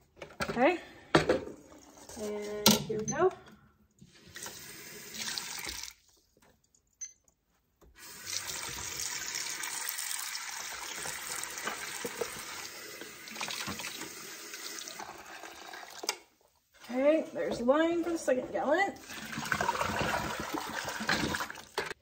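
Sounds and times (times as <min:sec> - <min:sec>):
faucet running into a metal pot: 0:04.2 - 0:06.0, 0:08.0 - 0:16.2, 0:19.0 - 0:21.9.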